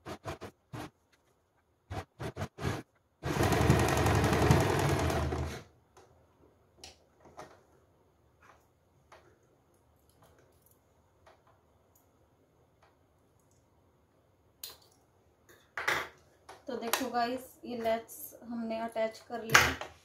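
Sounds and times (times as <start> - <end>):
sewing machine stitching: 1.9 - 5.7.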